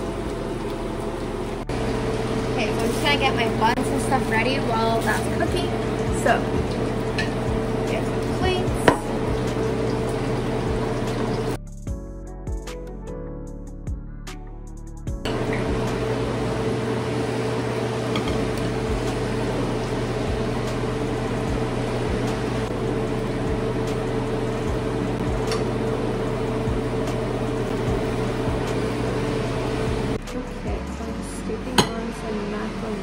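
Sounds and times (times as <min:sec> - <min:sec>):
kitchen appliance humming: 0:00.0 - 0:11.6, 0:15.2 - 0:33.0
utensils and dishes tapping: 0:06.7 - 0:07.5, 0:18.1 - 0:18.5, 0:31.8 - 0:32.0.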